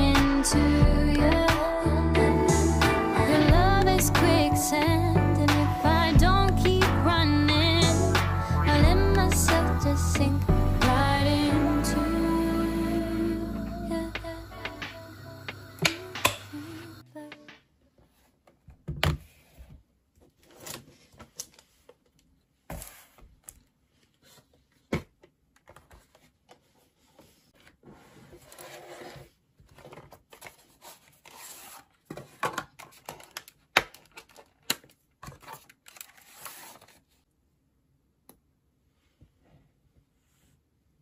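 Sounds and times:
packaging rustling and scraping: 22.7 - 24.9, 25.7 - 37.2.

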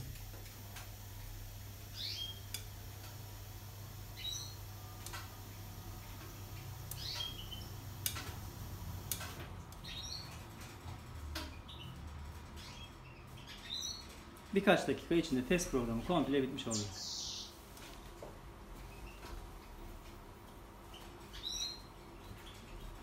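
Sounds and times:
washer-dryer humming: 0.0 - 23.0
bird chirping: 1.9 - 2.5, 4.2 - 4.6, 6.5 - 7.8, 9.8 - 10.4, 12.6 - 14.1, 16.6 - 17.6, 20.9 - 23.0.

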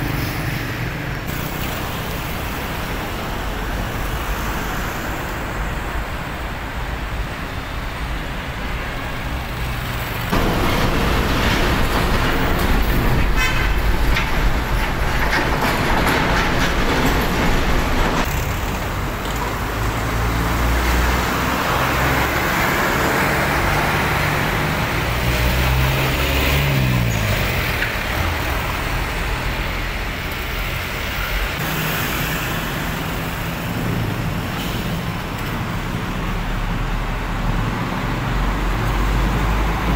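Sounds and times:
diesel trucks passing: 0.0 - 39.9
street traffic: 0.0 - 39.9.

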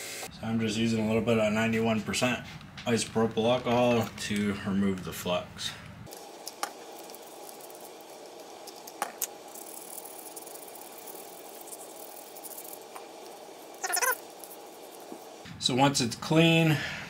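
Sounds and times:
steady hiss: 0.0 - 1.0, 6.0 - 16.9
brush bristles scratching: 6.1 - 15.4.

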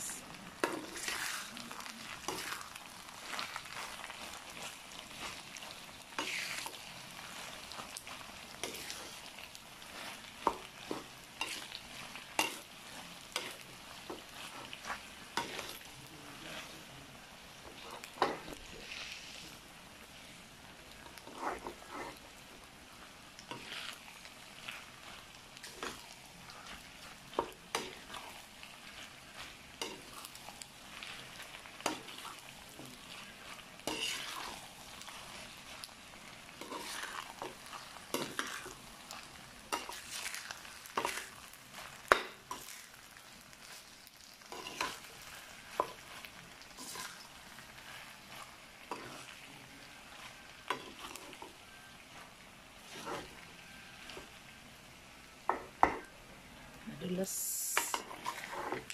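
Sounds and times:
faint sizzle: 0.0 - 58.9
metal spatula scraping metal pan: 33.8 - 34.6, 57.8 - 58.9.

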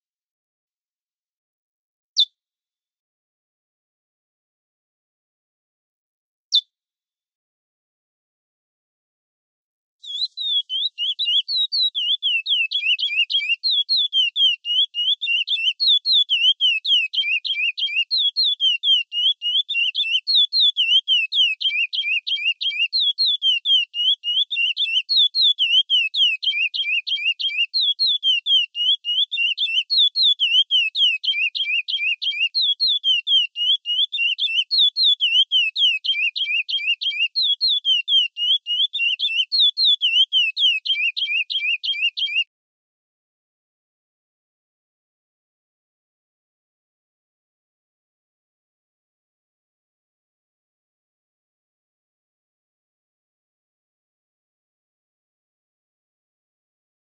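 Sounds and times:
finch singing whistled notes: 10.0 - 42.5.

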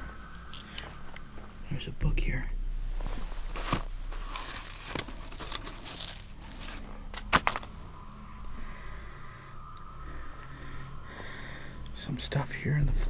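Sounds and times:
dry straw crackling: 2.9 - 8.0.

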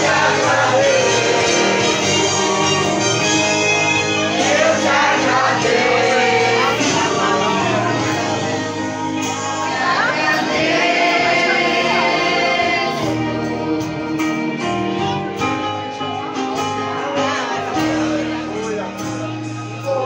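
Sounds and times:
children singing a hymn: 0.0 - 3.3, 4.3 - 8.8, 9.5 - 13.8
instrumental accompaniment: 0.0 - 20.0.

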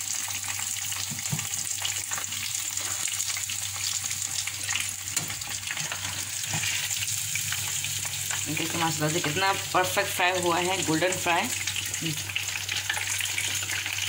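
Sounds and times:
chicken sizzling in hot oil: 0.0 - 14.0.

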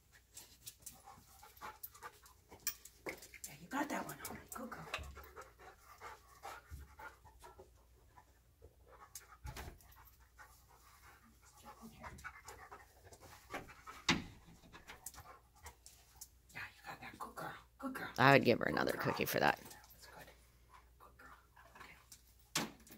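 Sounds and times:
dog panting: 0.2 - 17.6.

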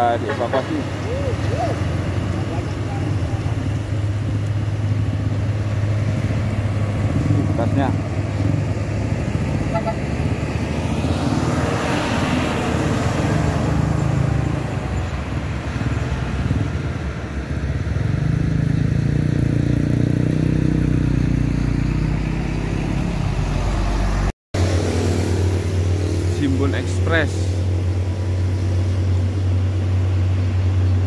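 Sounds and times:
heavy truck diesel engines: 0.0 - 31.0
small car passing: 0.8 - 31.0.

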